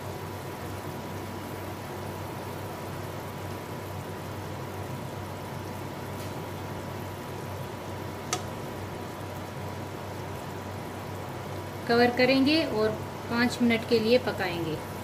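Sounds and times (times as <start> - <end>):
faint hum: 0.0 - 15.0
syrup simmering with low hiss: 0.0 - 15.0
sharp click: 8.3 - 8.5.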